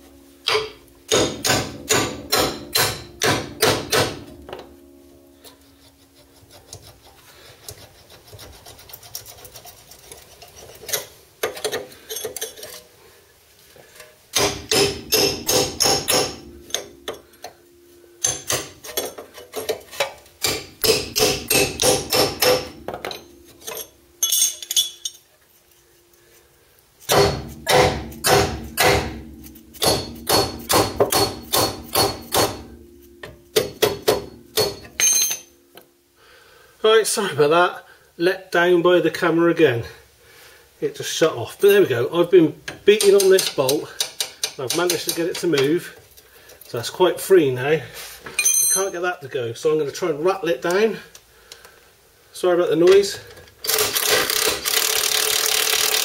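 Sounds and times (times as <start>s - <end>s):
hammer striking metal bolt: 0.4s - 4.7s, 14.3s - 17.2s, 18.2s - 25.0s, 27.1s - 35.5s.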